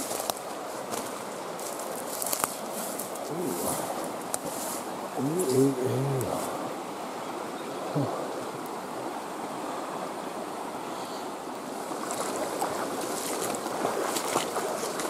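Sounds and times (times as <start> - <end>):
creek rushing over rocks: 0.0 - 15.0.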